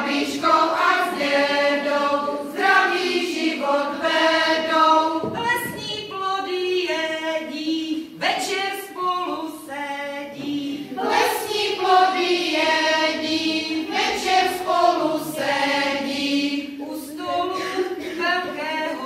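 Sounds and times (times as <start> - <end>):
women singing together: 0.0 - 19.0.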